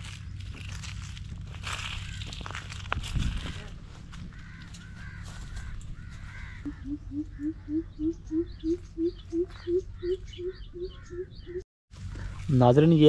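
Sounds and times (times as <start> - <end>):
low steady rumble: 0.0 - 13.0
bird caw-like calls: 3.9 - 11.6.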